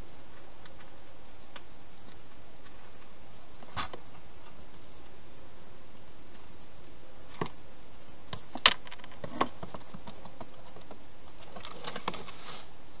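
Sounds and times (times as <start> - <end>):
steady hiss: 0.0 - 8.7, 9.4 - 13.0.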